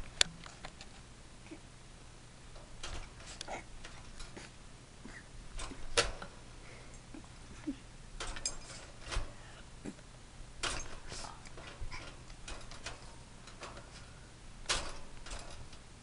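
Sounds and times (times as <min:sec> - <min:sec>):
wire cage rattling: 0:02.4 - 0:07.1, 0:08.1 - 0:16.0.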